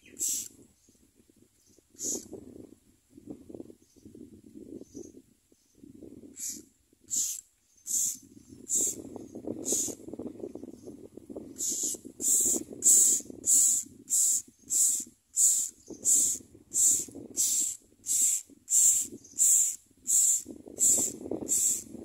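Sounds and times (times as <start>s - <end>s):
nestlings begging with hissing calls: 0.0s - 0.5s, 2.0s - 2.3s, 6.4s - 9.0s, 9.6s - 10.0s, 11.5s - 21.9s.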